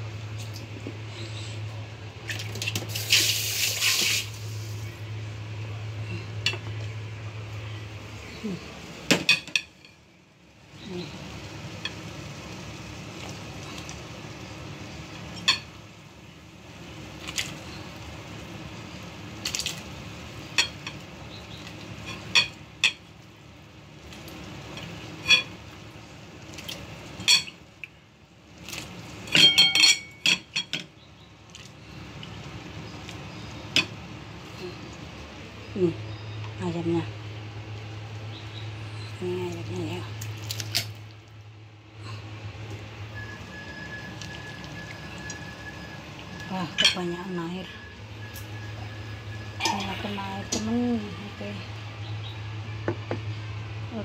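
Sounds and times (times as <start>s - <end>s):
metal pots and utensils clinking: 9.1s - 10.0s, 24.8s - 25.6s, 27.2s - 27.6s, 29.2s - 30.9s, 49.5s - 50.7s.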